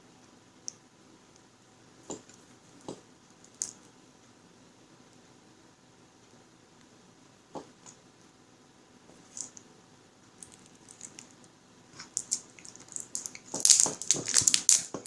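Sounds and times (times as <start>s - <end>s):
plastic wrap crinkling: 10.4s - 11.4s, 12.0s - 15.0s.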